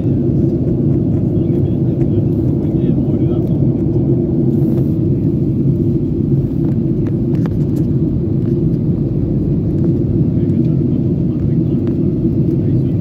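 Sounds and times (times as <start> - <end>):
airliner cabin drone: 0.0 - 13.0.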